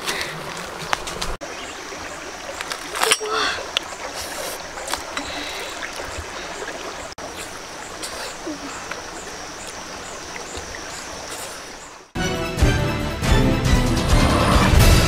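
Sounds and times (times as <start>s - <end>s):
steady rushing water: 0.0s - 12.2s
music: 12.2s - 15.0s.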